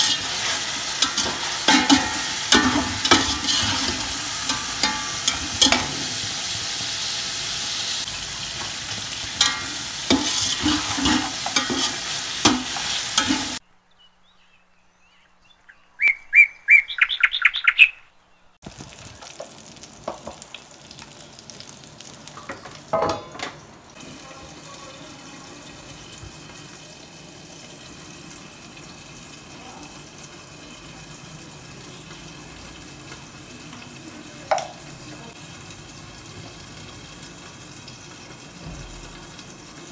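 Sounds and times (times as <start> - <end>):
metal spoon scraping pot: 0.0 - 6.2, 9.4 - 13.6
onions sizzling in oil: 0.0 - 13.6, 18.6 - 39.9.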